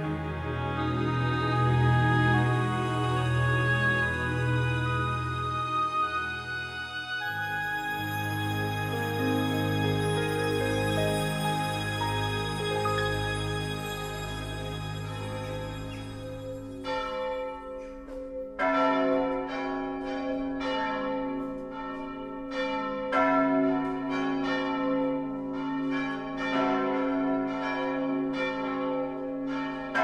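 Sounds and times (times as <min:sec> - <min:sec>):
held low music chord: 0:00.0 - 0:17.6
bells ringing in a peal: 0:00.0 - 0:30.0.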